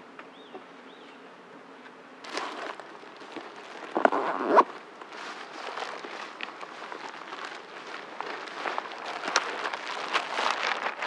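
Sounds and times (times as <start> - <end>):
rustling and handling of gear: 2.2 - 11.0.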